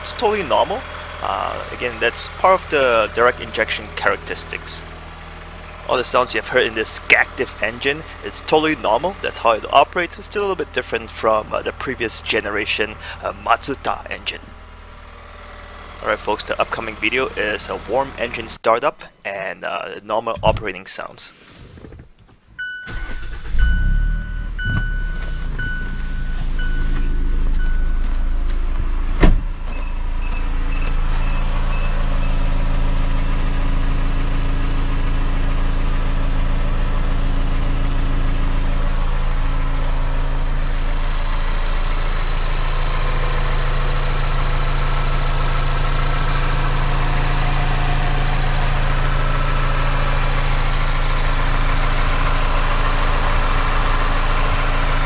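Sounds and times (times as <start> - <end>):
car engine idling: 0.0 - 18.5, 21.8 - 55.0
car door shutting: 21.4 - 31.3.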